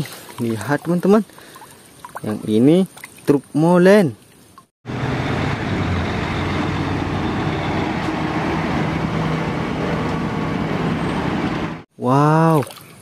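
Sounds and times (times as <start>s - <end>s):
diesel engine running: 4.8s - 11.9s
traffic noise: 4.8s - 11.9s.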